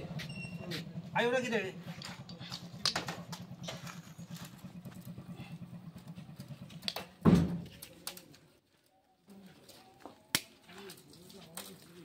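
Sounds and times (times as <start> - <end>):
engine idling: 0.0 - 8.5
loud dull thump: 7.2 - 7.7.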